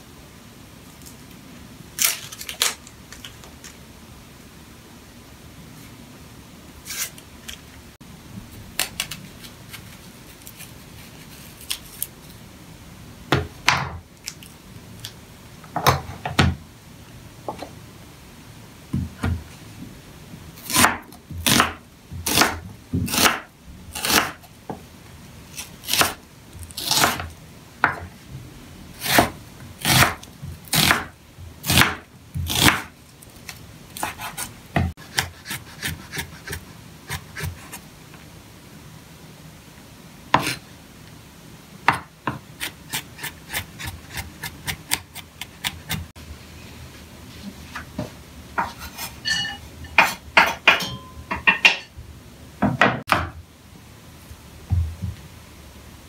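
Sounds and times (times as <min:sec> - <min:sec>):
knife slicing onion on board: 0:20.6 - 0:24.4, 0:25.6 - 0:28.0, 0:29.0 - 0:32.9, 0:34.0 - 0:37.8, 0:40.3 - 0:40.6, 0:41.9 - 0:46.1, 0:48.6 - 0:50.9.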